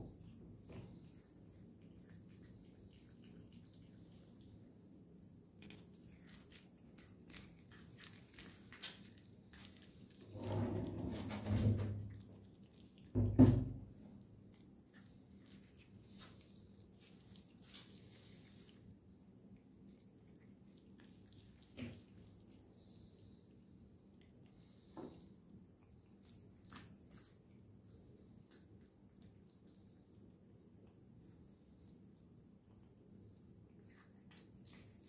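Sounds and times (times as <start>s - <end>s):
high-pitched insect trill: 0.0s - 35.0s.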